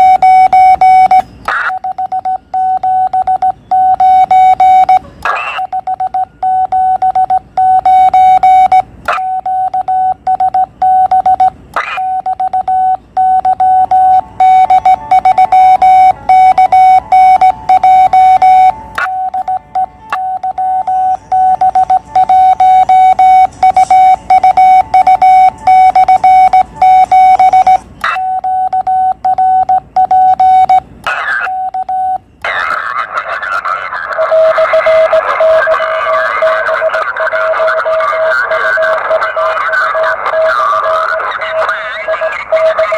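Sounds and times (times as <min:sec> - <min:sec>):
morse code tone: 0:00.0 - 0:42.9
music: 0:14.4 - 0:27.0.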